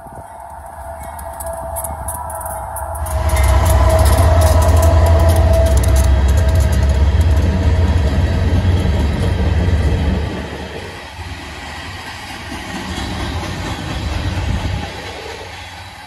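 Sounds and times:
freight car wheels clattering on rails: 1.2 - 10.1
low diesel rumble: 1.2 - 11.0.

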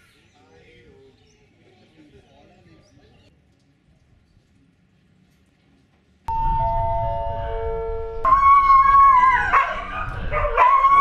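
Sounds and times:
public address chime: 6.3 - 8.4
dog howling: 8.3 - 11.0.

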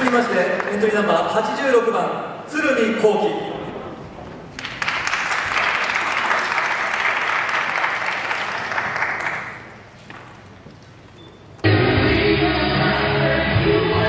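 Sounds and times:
audience applauding: 0.0 - 0.9, 4.5 - 10.3
hall background noise: 0.0 - 14.0.

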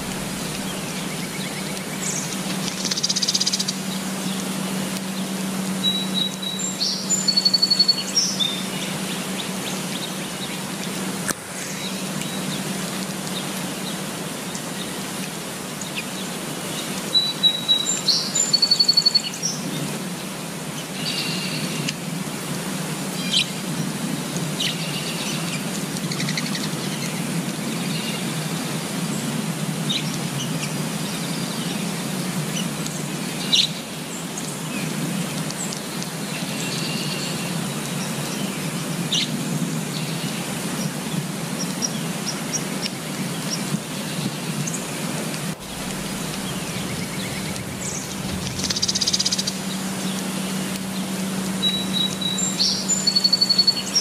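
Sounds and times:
birds chirping: 0.0 - 4.5, 45.5 - 54.0
rain falling on leaves: 0.0 - 54.0.

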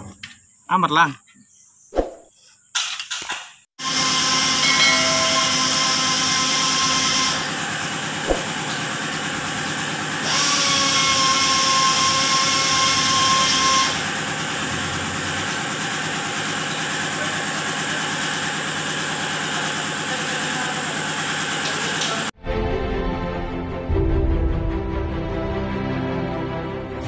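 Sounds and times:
power drill whining: 3.8 - 8.0, 9.0 - 17.3
engine hum: 14.1 - 16.7.

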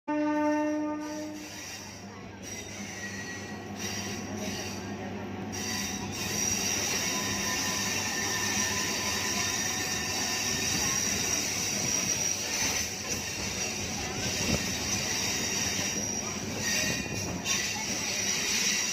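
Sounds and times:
train horn: 0.1 - 1.5
train wagons rolling on rails: 0.4 - 18.9
wheel squeal: 1.3 - 4.9, 5.5 - 18.9.

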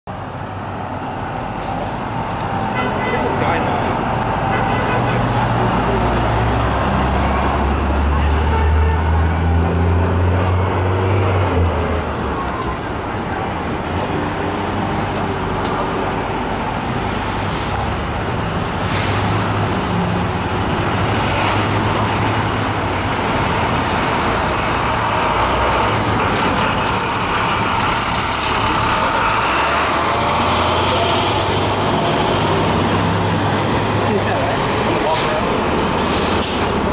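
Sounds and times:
bus diesel engine hum: 0.1 - 36.9
street traffic noise: 0.1 - 36.9.

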